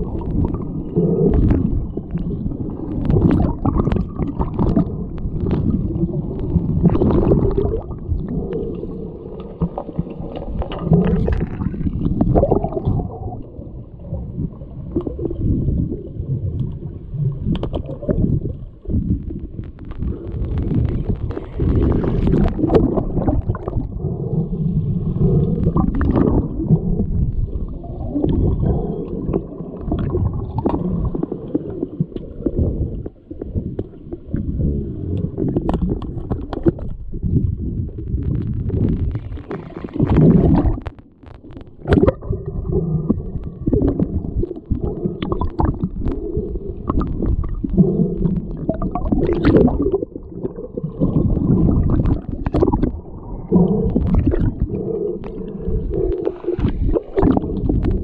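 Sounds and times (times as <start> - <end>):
underwater rumbling and gurgling: 0.0 - 58.0
sharp underwater clicks and knocks: 1.3 - 8.0, 17.4 - 23.9, 35.2 - 37.4, 38.0 - 42.4, 43.0 - 50.1, 51.0 - 53.1, 53.7 - 55.4, 56.0 - 58.0.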